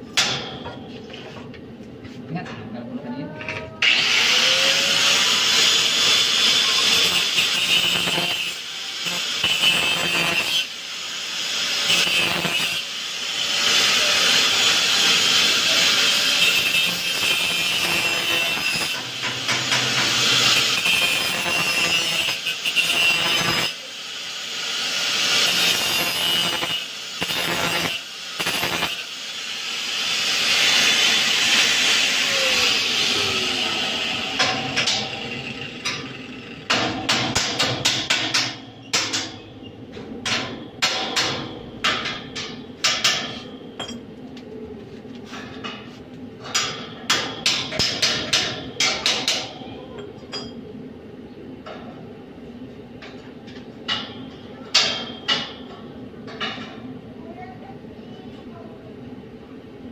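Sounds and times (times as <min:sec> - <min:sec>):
welding arc crackling: 0:03.9 - 0:39.5.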